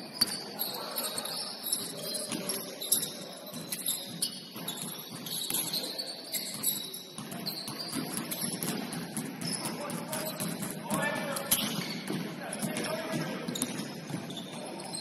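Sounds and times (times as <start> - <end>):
shoes squeaking on gym floor: 0.0 - 12.2, 12.8 - 15.0
basketball bouncing: 6.5 - 15.0.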